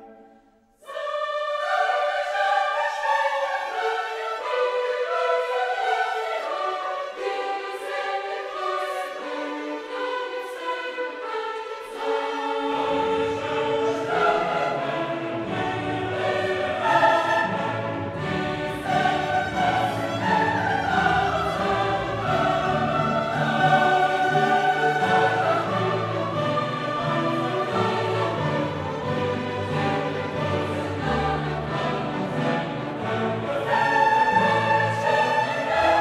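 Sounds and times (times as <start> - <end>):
choir singing: 0.0 - 36.0
orchestra playing: 11.4 - 36.0.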